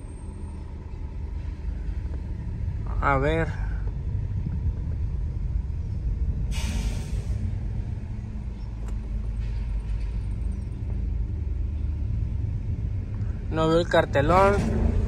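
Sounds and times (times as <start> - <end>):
low rumble inside a car: 0.0 - 6.5, 7.3 - 15.0
brief hiss: 6.5 - 7.4.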